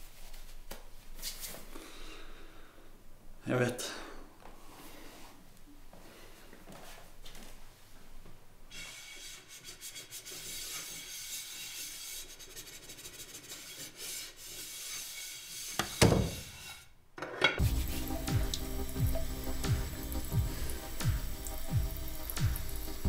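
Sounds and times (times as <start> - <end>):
music with low booms: 17.6 - 23.0.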